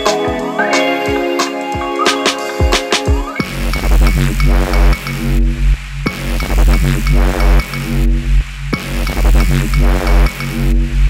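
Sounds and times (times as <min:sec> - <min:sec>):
electronic music with pulsing bass: 0:00.0 - 0:11.0.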